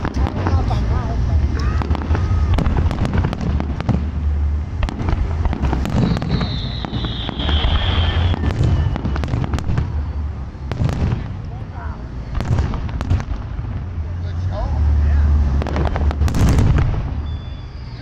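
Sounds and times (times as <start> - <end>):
firework bangs and crackles: 0.0 - 18.0
low rumble: 0.0 - 18.0
high firework whistle: 5.5 - 11.2, 16.3 - 18.0.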